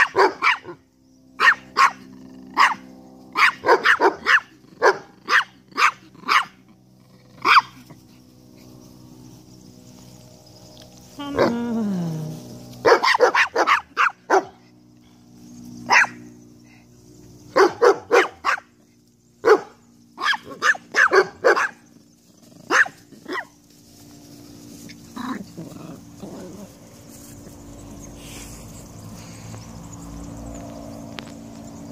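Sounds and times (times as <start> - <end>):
dog barking: 0.0 - 0.8, 1.4 - 6.6, 7.4 - 7.8, 12.8 - 14.7, 15.9 - 16.2, 17.5 - 18.7, 19.4 - 21.8, 22.7 - 23.6.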